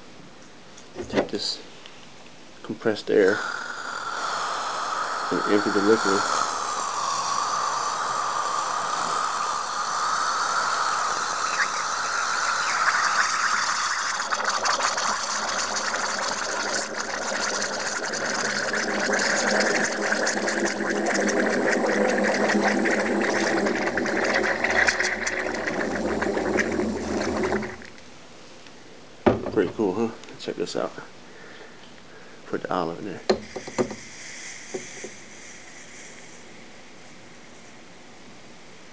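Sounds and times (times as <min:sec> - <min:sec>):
compressed air spray hissing: 0:03.1 - 0:27.8, 0:33.3 - 0:37.7.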